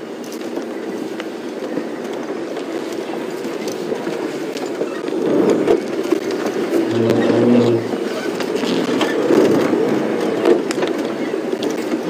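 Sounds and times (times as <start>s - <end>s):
vehicle rattles and clicks: 0.0s - 12.0s
vehicle engine running: 6.8s - 8.0s.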